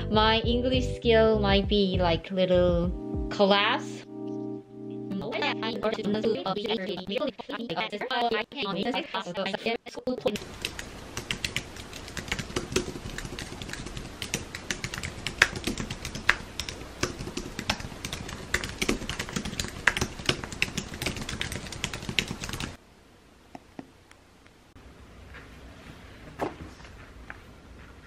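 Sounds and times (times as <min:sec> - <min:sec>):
fast typing on keyboard: 0:10.4 - 0:22.8.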